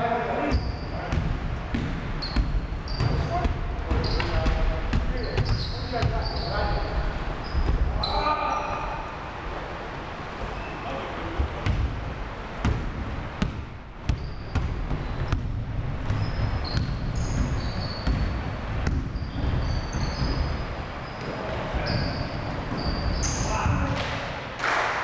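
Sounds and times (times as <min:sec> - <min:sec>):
sneakers squeaking on hardwood: 0:00.4 - 0:09.2, 0:10.3 - 0:24.2
basketball bouncing on hardwood: 0:00.5 - 0:06.4, 0:12.6 - 0:21.2.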